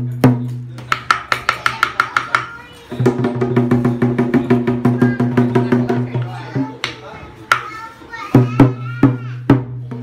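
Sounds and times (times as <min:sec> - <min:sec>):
drum beating fast: 0:03.0 - 0:06.8.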